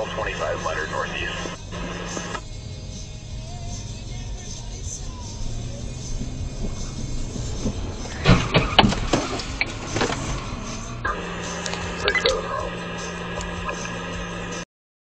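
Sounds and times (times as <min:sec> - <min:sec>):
steady low hum: 0:00.0 - 0:14.6
road and engine noise: 0:00.0 - 0:14.7
car crash bangs and knocks: 0:06.2 - 0:10.6.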